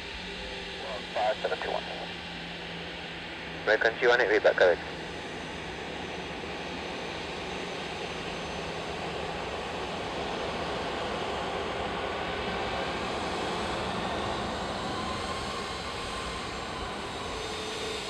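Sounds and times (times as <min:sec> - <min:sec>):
airliner engines taxiing: 0:00.0 - 0:18.0.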